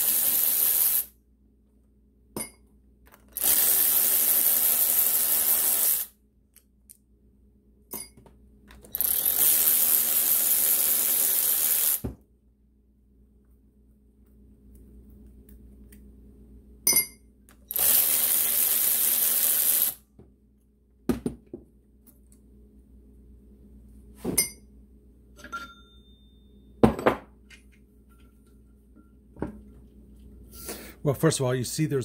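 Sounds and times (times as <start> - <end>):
metal tools clinking on workbench: 25.4 - 26.1.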